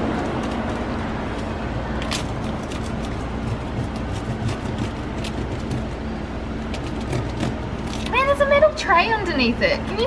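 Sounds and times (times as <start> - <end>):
low rumble with faint hum: 0.0 - 10.0
scissors snipping pizza crust: 2.0 - 6.0.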